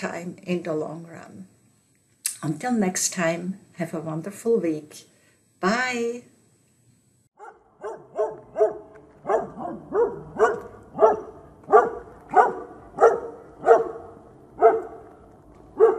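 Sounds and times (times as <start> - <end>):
dog barking: 7.4 - 15.9.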